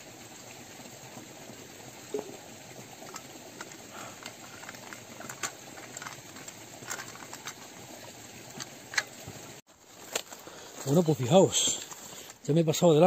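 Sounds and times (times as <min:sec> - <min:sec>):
rain hissing: 0:00.0 - 0:13.0
footsteps on rock and gravel: 0:09.2 - 0:12.6.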